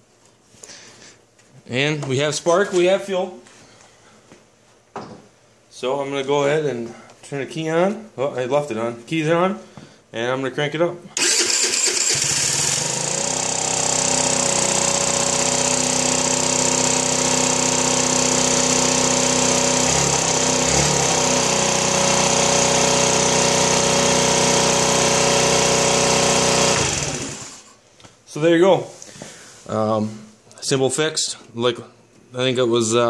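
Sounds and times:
scooter engine idling: 11.2s - 27.6s
scooter electric starter cranking: 11.2s - 27.7s.

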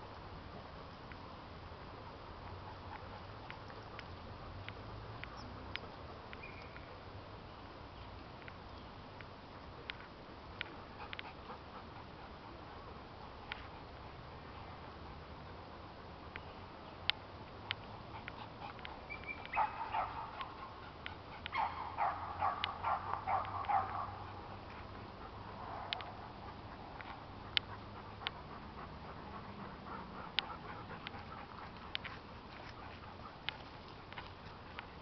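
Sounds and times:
small dog yelping: 18.8s - 20.5s, 21.5s - 24.1s.

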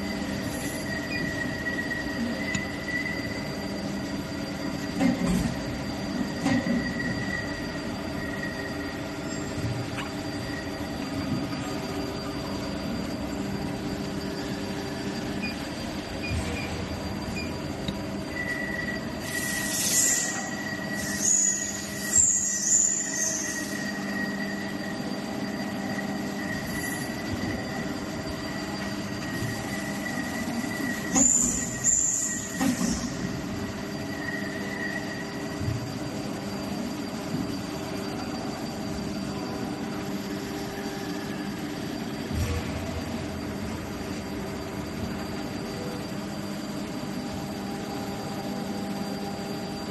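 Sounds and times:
high-pitched hissing and squealing: 19.0s - 24.1s.

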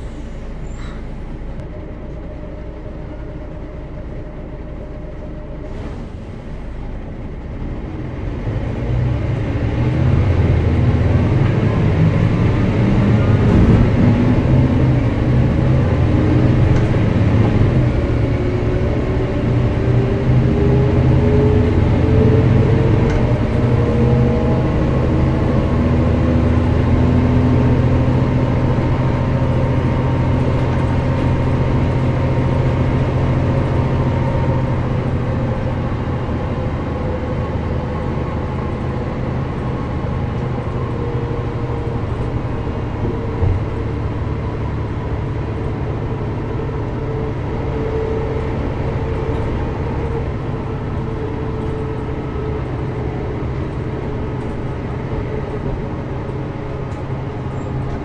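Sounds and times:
bus engine accelerating: 0.0s - 58.0s.

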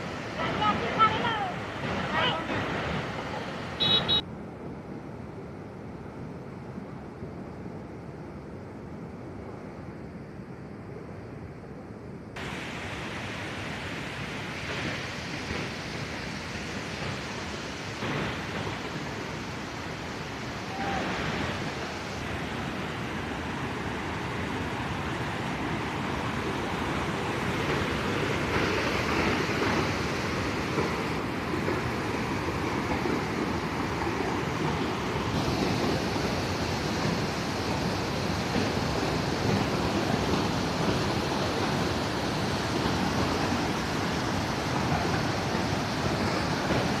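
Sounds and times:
waterfall roaring: 0.0s - 4.2s, 12.4s - 47.0s.

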